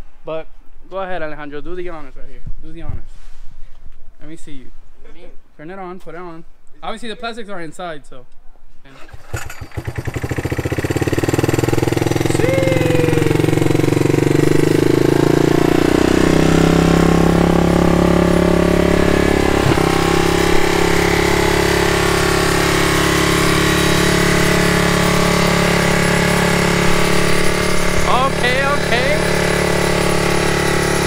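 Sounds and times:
atv engine running: 0:09.0 - 0:31.0.

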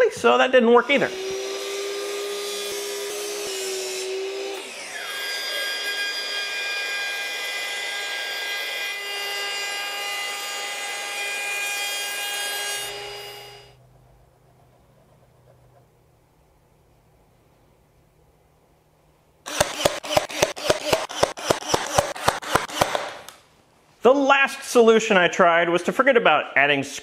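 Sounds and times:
router whining through wood: 0:00.8 - 0:13.8, 0:19.5 - 0:23.4
miter saw motor winding down: 0:00.9 - 0:07.4.

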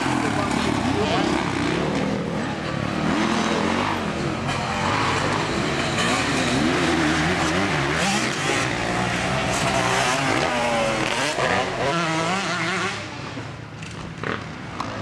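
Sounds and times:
motocross engine revving: 0:00.0 - 0:13.3.

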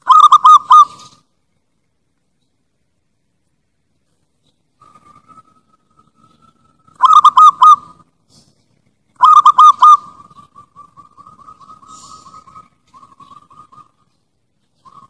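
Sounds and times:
dove cooing: 0:00.0 - 0:01.2, 0:04.8 - 0:08.5, 0:09.2 - 0:15.0.

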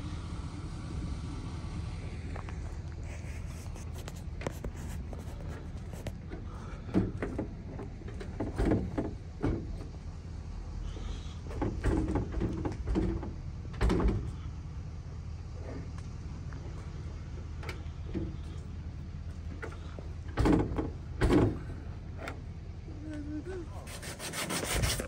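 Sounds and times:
steady low hum: 0:00.0 - 0:25.0
knocks and clunks: 0:04.0 - 0:10.0, 0:11.5 - 0:14.4, 0:17.6 - 0:18.7, 0:19.3 - 0:22.4.

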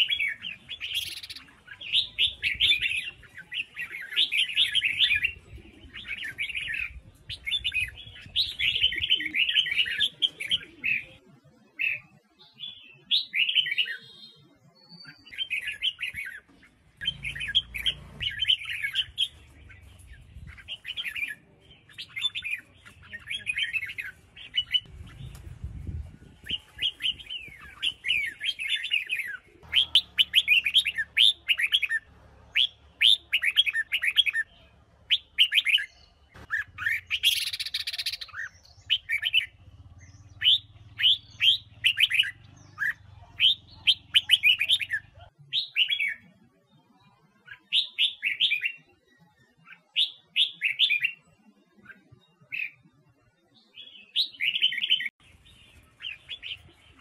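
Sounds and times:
bird chirping song: 0:00.0 - 0:57.0
harsh noisy bird call: 0:26.6 - 0:39.6.

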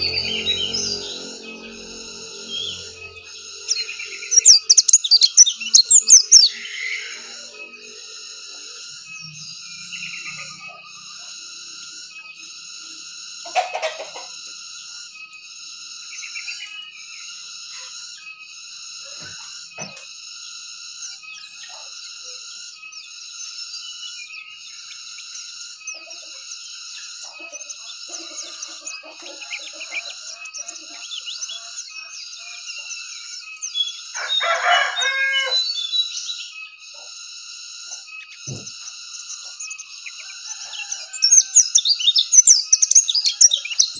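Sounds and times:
rooster crowing: 0:00.0 - 0:08.9, 0:13.5 - 0:14.4, 0:27.4 - 0:32.7, 0:34.0 - 0:35.9, 0:39.5 - 0:42.1, 0:43.2 - 0:43.9
bird chirping in trills: 0:00.0 - 0:43.9.

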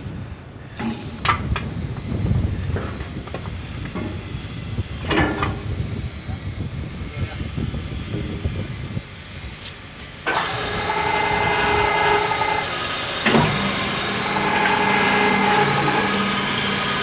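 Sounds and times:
crane hoist motor whine: 0:07.5 - 0:17.0.

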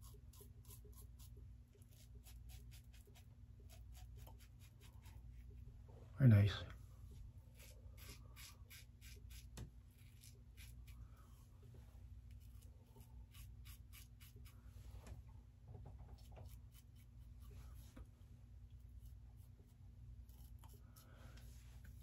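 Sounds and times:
safety razor scratching stubble: 0:07.6 - 0:11.0, 0:12.3 - 0:14.5.

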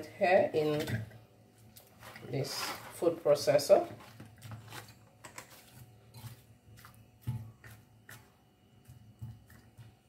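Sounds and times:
spatula scraping cutting board: 0:02.0 - 0:03.2.

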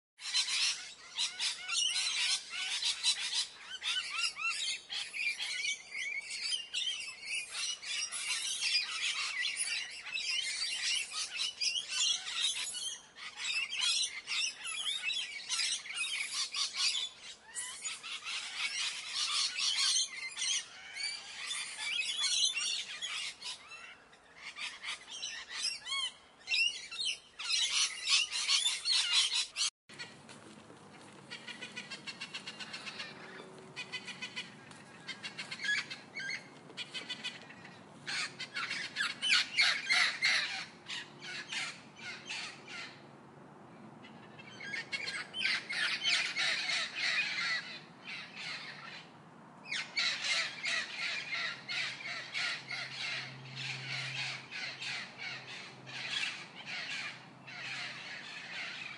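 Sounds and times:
macaws squawking: 0:30.9 - 0:43.0, 0:44.4 - 0:49.0, 0:49.7 - 0:58.9.

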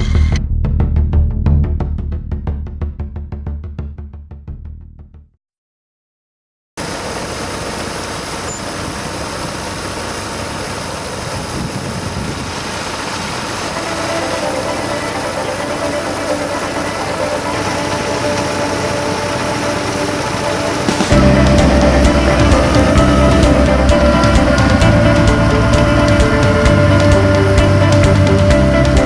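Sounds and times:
diesel engine idling: 0:06.8 - 0:29.0
faint steady tone: 0:07.2 - 0:09.8.

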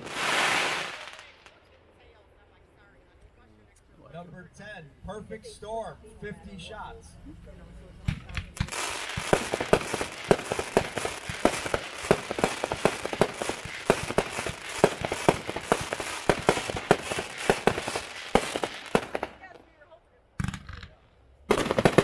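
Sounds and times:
fireworks crackling and banging: 0:00.0 - 0:02.2, 0:08.0 - 0:22.0.

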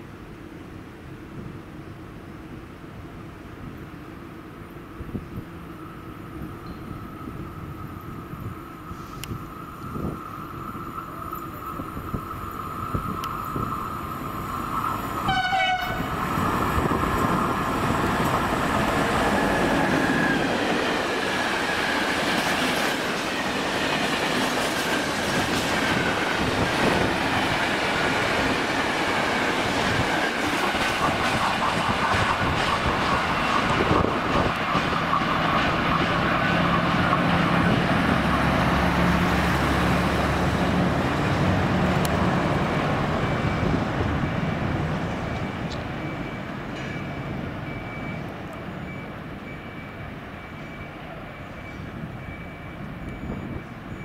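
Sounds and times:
train wheels clattering over track: 0:14.4 - 0:47.4.

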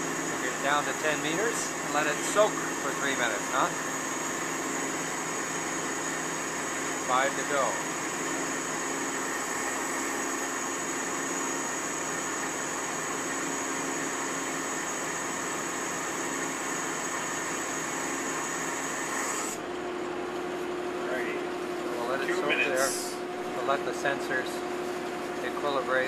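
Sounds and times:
boat machinery drone: 0:00.0 - 0:24.7
thin high whine: 0:22.1 - 0:23.2.

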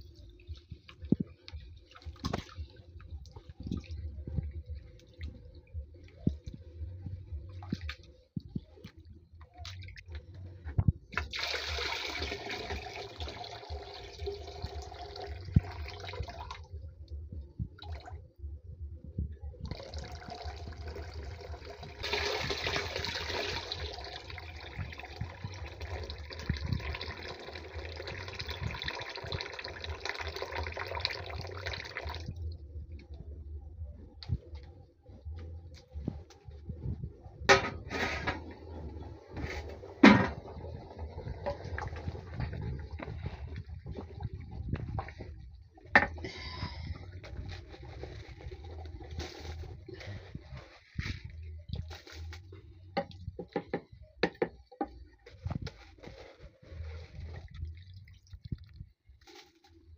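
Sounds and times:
water pouring into bucket: 0:11.2 - 0:16.6, 0:19.7 - 0:32.4, 0:56.8 - 0:59.5.

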